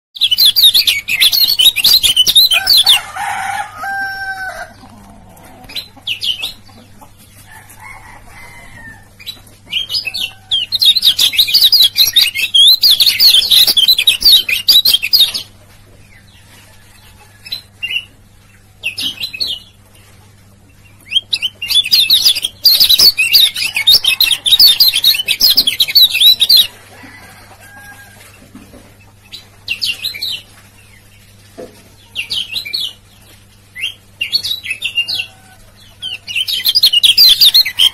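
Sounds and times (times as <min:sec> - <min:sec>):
bird high rapid chattering: 0:00.2 - 0:03.0, 0:09.2 - 0:15.6, 0:21.1 - 0:26.8.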